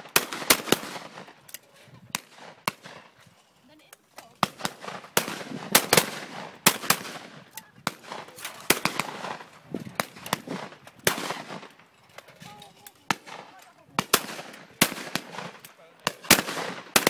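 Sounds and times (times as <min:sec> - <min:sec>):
shotgun fire: 0:00.0 - 0:01.3, 0:04.4 - 0:11.7, 0:13.1 - 0:17.0.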